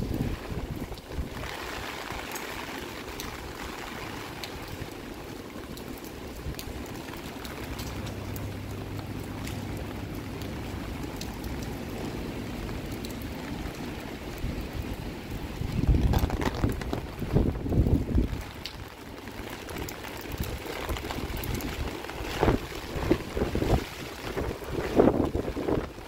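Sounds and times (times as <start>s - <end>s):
wind buffeting microphone: 0.0s - 2.2s, 14.3s - 19.0s, 19.7s - 26.0s
rain: 0.0s - 26.0s
typhoon wind: 0.0s - 26.0s.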